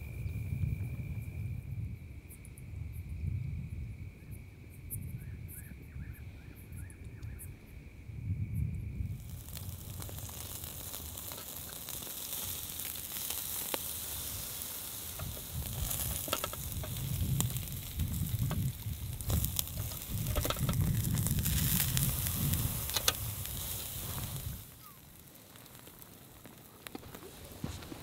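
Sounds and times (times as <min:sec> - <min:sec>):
low uneven rumble: 0:08.5 - 0:28.0
food sizzling in a pan: 0:09.1 - 0:28.0
pops and crackles: 0:09.1 - 0:28.0.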